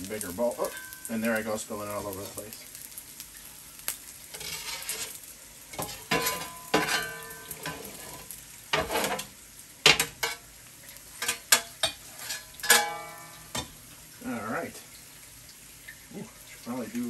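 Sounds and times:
griddle sizzling: 0.0s - 17.0s
metal spatula scraping griddle: 4.3s - 10.4s, 11.2s - 13.7s.

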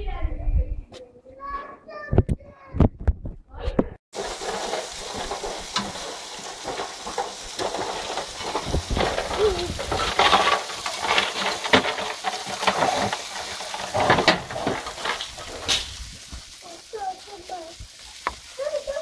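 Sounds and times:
chicken sizzling on a grill: 4.1s - 19.0s.

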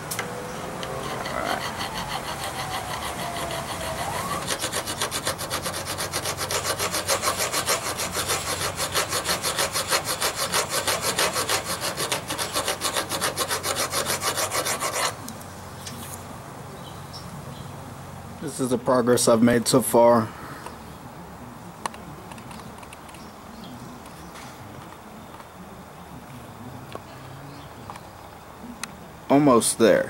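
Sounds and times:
file rasping on steel: 0.8s - 15.2s.

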